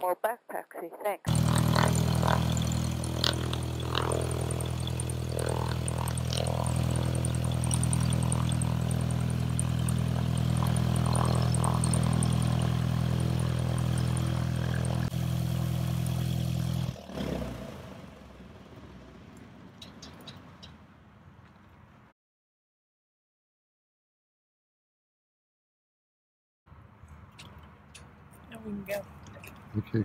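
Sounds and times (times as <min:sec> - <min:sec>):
airplane engine and propeller idling: 0:01.3 - 0:20.4.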